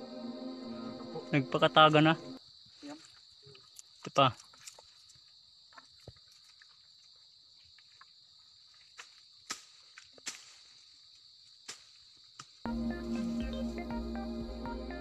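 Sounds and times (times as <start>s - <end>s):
high-pitched insect drone: 0.0s - 3.7s, 12.7s - 15.0s.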